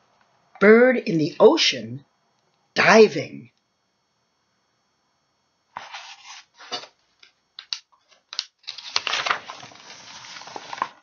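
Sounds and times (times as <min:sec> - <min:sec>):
book pages rustling: 0:05.8 - 0:06.9, 0:08.0 - 0:11.0
paper crinkling rustle: 0:05.8 - 0:06.9, 0:08.0 - 0:11.0.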